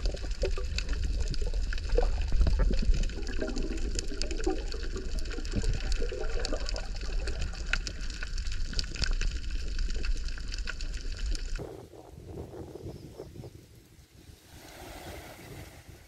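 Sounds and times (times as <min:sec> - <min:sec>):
faint crackling clicks: 0:00.0 - 0:11.6
underwater rumble of moving water: 0:00.0 - 0:11.6
water gurgling: 0:00.0 - 0:11.6.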